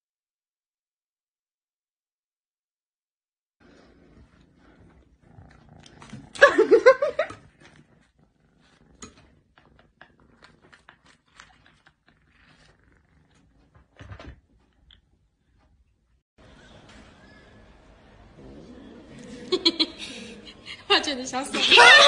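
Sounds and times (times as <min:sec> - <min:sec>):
kitten growling: 0:03.6 - 0:15.0
chewing clicks: 0:08.6 - 0:14.0.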